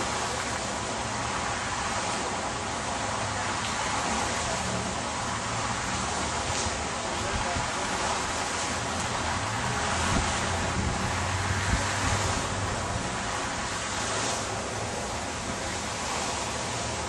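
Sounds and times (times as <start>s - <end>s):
wind on microphone: 9.6s - 13.2s.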